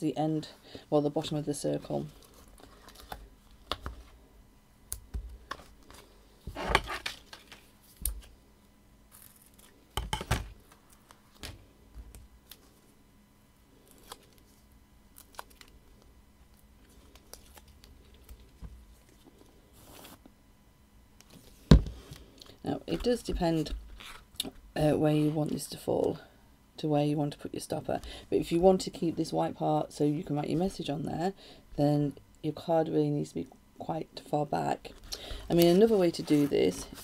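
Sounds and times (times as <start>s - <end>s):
paper and card rustling: 34.9s - 37.0s.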